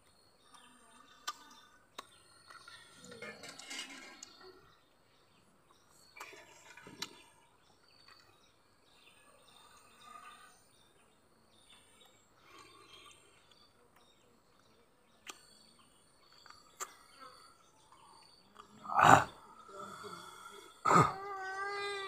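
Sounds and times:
faint bird chirps: 0.0 - 22.0
soft clicks of chewing: 0.4 - 2.7, 12.0 - 17.1, 18.2 - 18.8.

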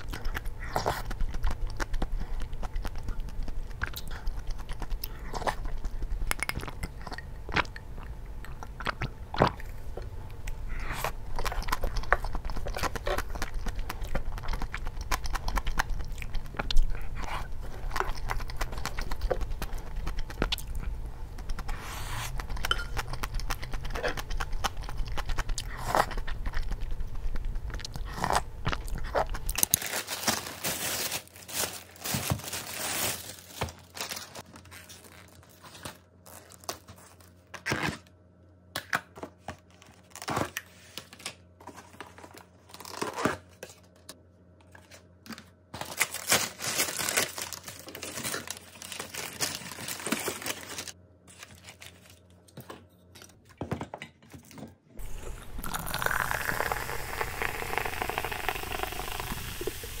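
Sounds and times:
plastic bag crinkling: 28.8 - 37.4, 45.8 - 52.4, 55.0 - 60.0.

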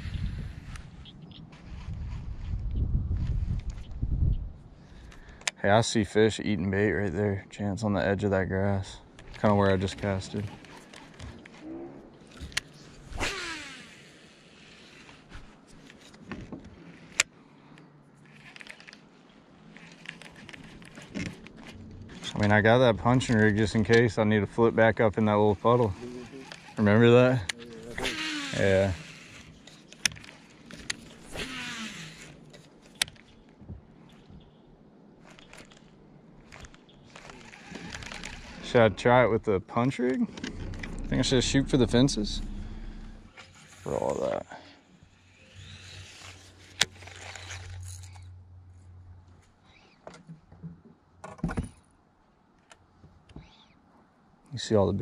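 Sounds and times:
fishing reel spool whirring: 12.4 - 15.4, 25.3 - 33.0, 35.3 - 38.8, 45.1 - 48.3
fishing line whoosh off reel: 13.0 - 15.3.

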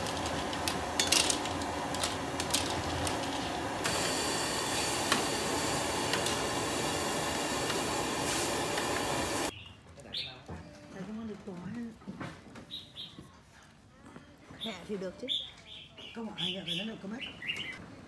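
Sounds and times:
broth boiling with hiss: 0.0 - 9.5
burner flame hissing: 0.0 - 9.5.

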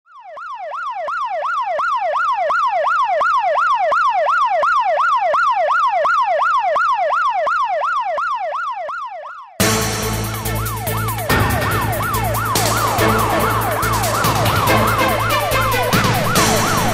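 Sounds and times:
emergency siren yelping: 0.1 - 16.9
street noise: 9.8 - 16.9.

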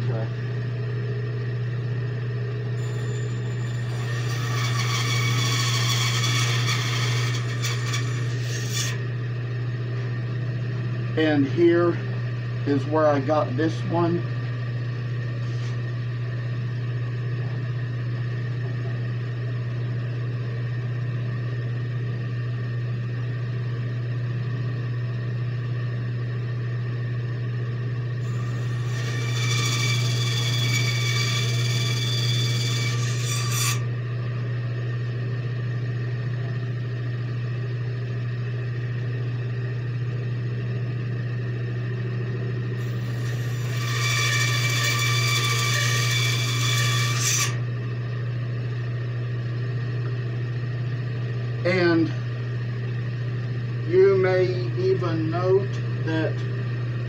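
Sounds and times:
bandsaw motor hum: 0.0 - 57.0
bandsaw blade cutting wood: 3.0 - 9.0, 28.2 - 33.8, 42.8 - 47.6.

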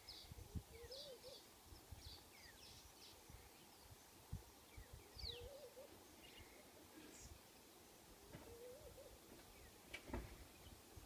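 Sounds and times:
birds chirping and whistling: 0.0 - 3.9, 4.6 - 6.6.

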